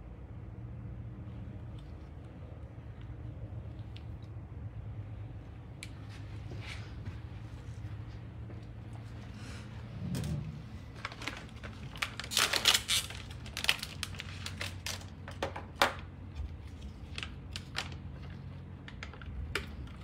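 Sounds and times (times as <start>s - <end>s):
foil packet crinkling and tearing: 10.8s - 20.0s.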